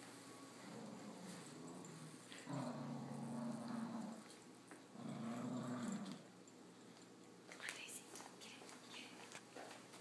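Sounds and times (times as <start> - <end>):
puppy growling: 0.7 - 6.4.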